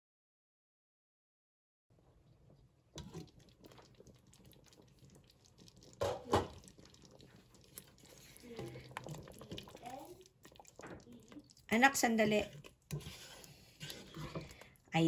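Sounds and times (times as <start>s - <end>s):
sauce simmering with small pops: 2.0s - 15.0s.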